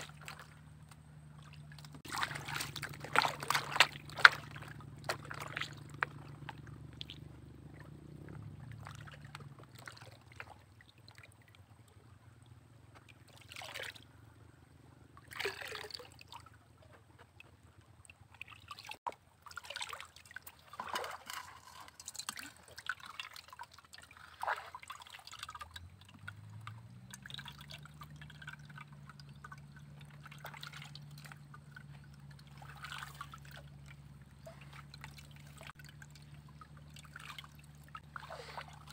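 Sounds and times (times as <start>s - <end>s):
low hum: 0.0s - 10.1s
water splashing and trickling: 0.0s - 38.9s
gravel washing in a pan: 20.4s - 33.4s, 35.7s - 38.9s.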